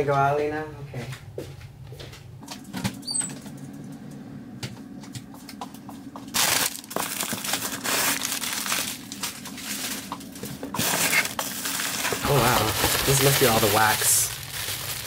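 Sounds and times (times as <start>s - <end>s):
low steady hum: 0.0s - 15.0s
paper bags rustling: 6.3s - 15.0s.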